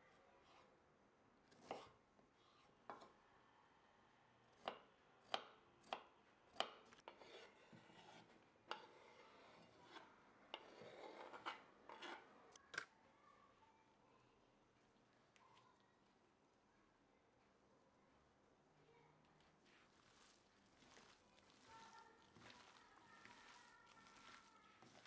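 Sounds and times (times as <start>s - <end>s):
food scraped off board: 19.7s - 25.0s.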